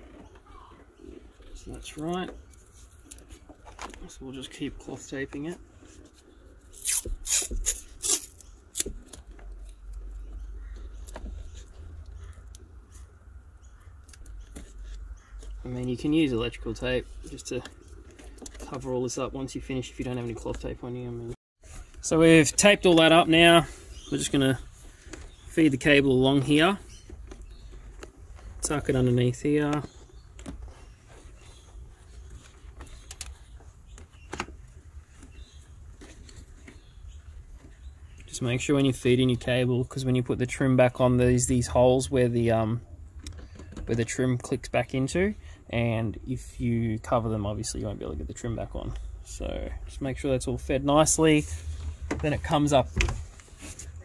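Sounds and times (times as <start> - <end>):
faint handling noise: 0.0 - 39.6, 50.7 - 54.0
tape tearing off roll: 6.7 - 9.2
clicks taps and rustling: 24.3 - 38.9.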